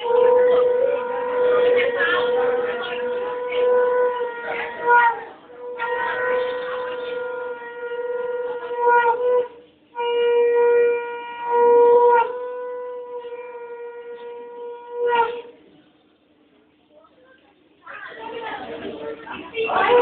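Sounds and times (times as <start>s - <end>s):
conch shell blasts: 0.0s - 15.6s.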